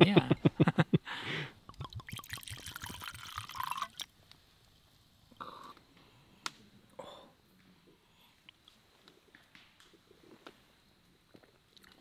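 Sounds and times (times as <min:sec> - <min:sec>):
liquid glugging into a mug: 0:01.7 - 0:04.1.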